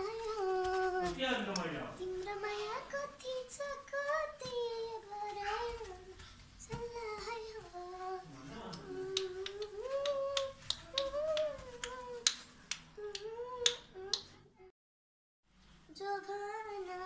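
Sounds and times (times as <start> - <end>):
child singing: 0.0 - 1.2, 2.0 - 12.4, 13.0 - 14.7, 15.9 - 17.0
sharp snaps: 8.7 - 14.4.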